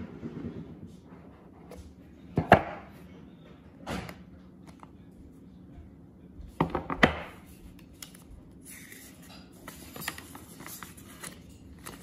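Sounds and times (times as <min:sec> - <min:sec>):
paper rustling and crackling: 0:07.8 - 0:12.0.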